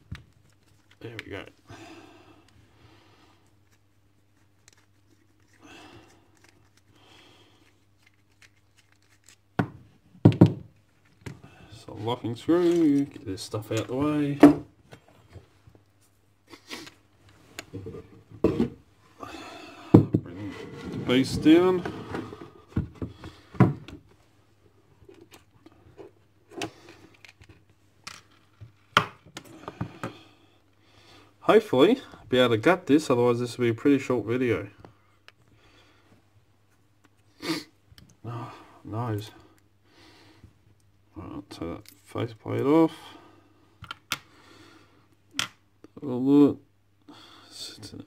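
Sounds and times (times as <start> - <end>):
hands scraping and rustling: 3.5 - 9.6
quiet scraping: 20.3 - 22.6.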